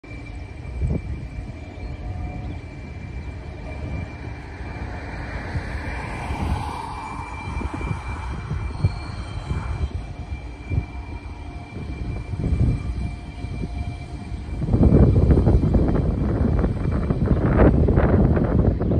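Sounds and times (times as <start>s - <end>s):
distant diesel locomotives rumbling: 0.0s - 18.9s
wind buffeting microphone: 0.0s - 18.9s.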